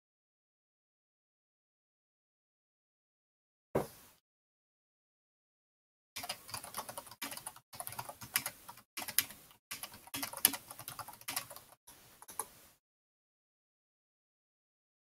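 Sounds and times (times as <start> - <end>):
typing on computer keyboard: 6.2 - 12.5.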